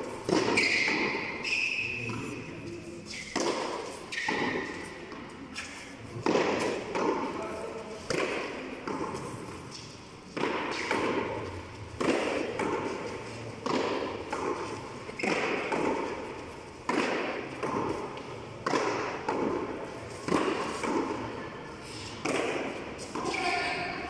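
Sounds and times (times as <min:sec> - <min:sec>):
ball slapping off concrete wall: 0:06.2 - 0:07.2, 0:10.3 - 0:21.2, 0:22.1 - 0:23.8.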